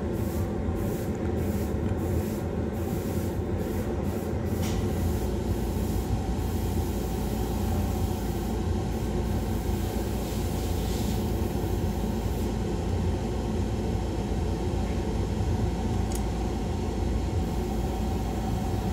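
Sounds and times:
extraction fan droning: 0:00.0 - 0:18.9.

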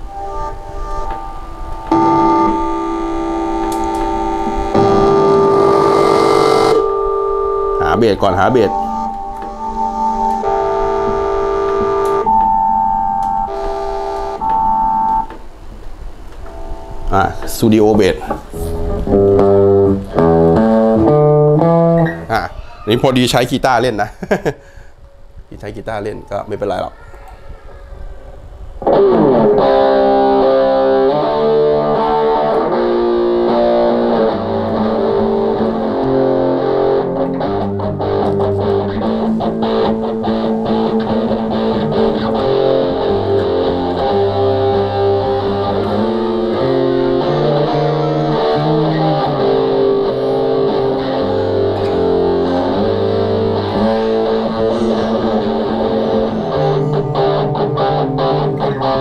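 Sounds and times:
electric guitar bass line: 0:00.0 - 0:15.3, 0:16.4 - 0:22.7, 0:28.8 - 0:59.0
recorded electric guitar track: 0:00.0 - 0:23.0, 0:28.4 - 0:59.0.

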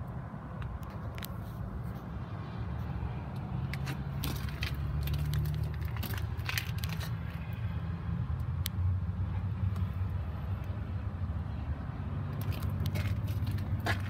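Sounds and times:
handling noise crackling: 0:03.8 - 0:07.3.

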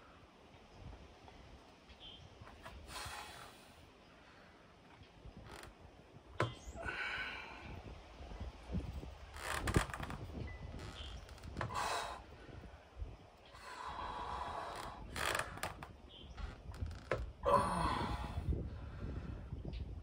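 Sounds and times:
man exhaling forcefully: 0:17.4 - 0:18.5.

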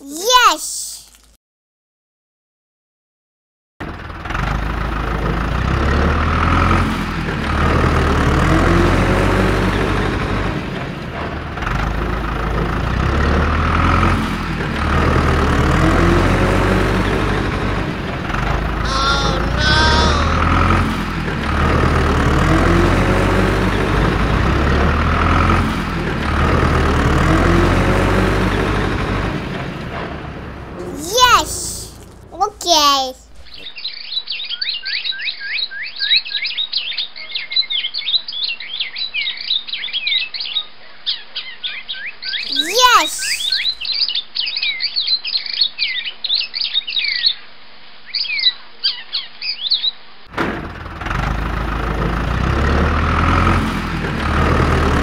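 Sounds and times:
diesel engine revving: 0:03.8 - 0:30.8, 0:50.6 - 0:55.0.

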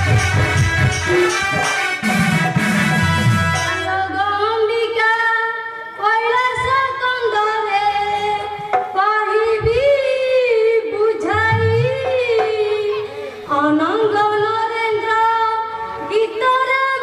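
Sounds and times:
accompanying music: 0:00.0 - 0:05.2, 0:11.0 - 0:14.8
girl singing slow melody: 0:03.9 - 0:17.0.

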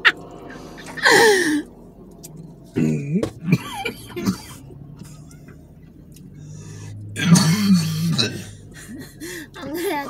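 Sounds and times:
person coughing: 0:02.8 - 0:04.6.

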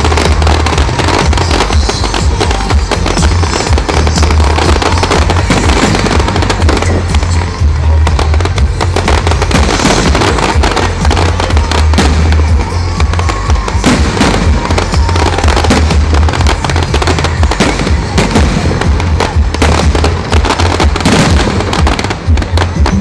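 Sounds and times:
firework bangs and crackling: 0:00.0 - 0:23.0.

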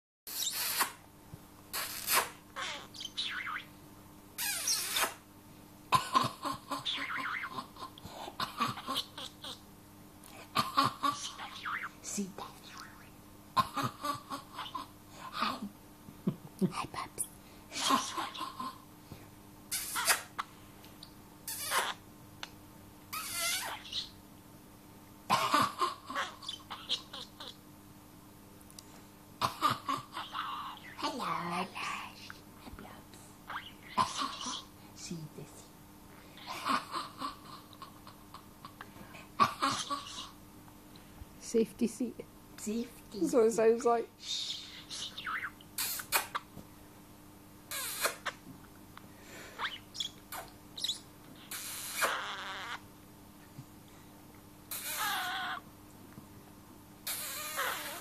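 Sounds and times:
budgerigar chirping and chattering: 0:02.6 - 0:03.7, 0:23.2 - 0:24.2, 0:26.2 - 0:27.6, 0:44.4 - 0:46.4, 0:49.6 - 0:52.8.

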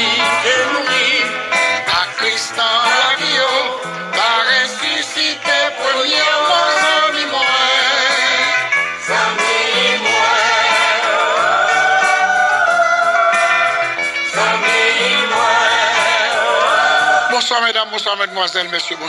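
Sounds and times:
solo voice singing: 0:00.0 - 0:08.6
gospel song: 0:00.0 - 0:19.0.

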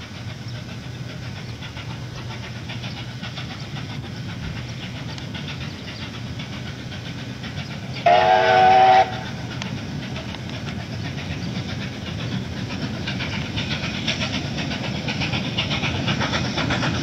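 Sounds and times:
steam locomotive rumbling: 0:00.0 - 0:17.0
steam whistle blast: 0:08.0 - 0:09.2.

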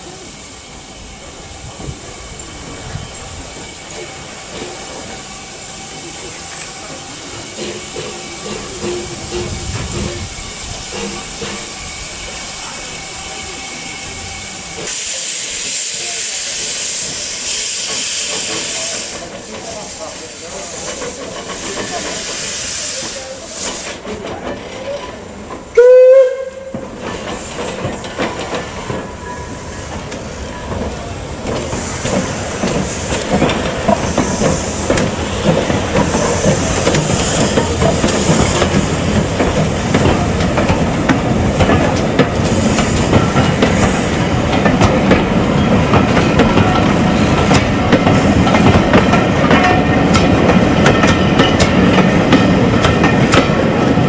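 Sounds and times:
steam hissing: 0:00.0 - 0:54.0
train wheels clattering on rail: 0:01.6 - 0:54.0
steam locomotive whistle: 0:25.7 - 0:26.8.

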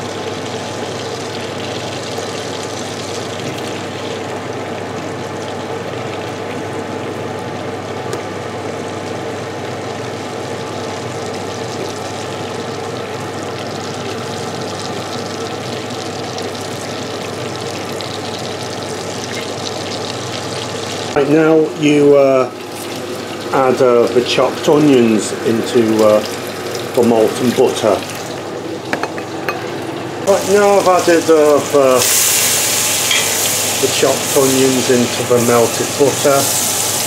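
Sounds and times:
butter sizzling in a pot: 0:08.6 - 0:37.0.

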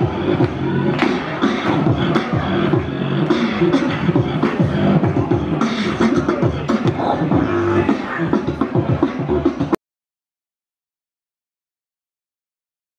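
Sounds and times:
beatbox vocal percussion: 0:00.0 - 0:09.8
loud music with steady beat: 0:00.0 - 0:09.8.

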